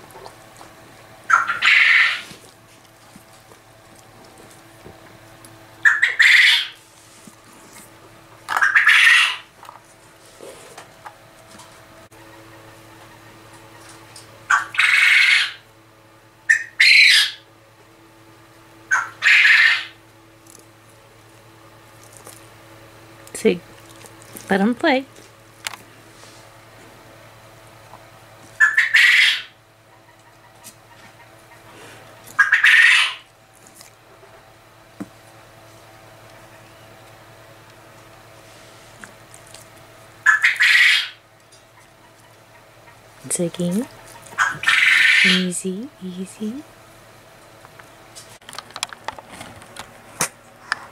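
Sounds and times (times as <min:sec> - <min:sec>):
quail harsh calls: 0:01.3 - 0:02.4, 0:05.8 - 0:06.8, 0:08.5 - 0:09.5, 0:14.5 - 0:15.6, 0:16.5 - 0:17.5, 0:18.9 - 0:20.0, 0:28.6 - 0:33.3, 0:40.2 - 0:41.2, 0:44.1 - 0:45.5.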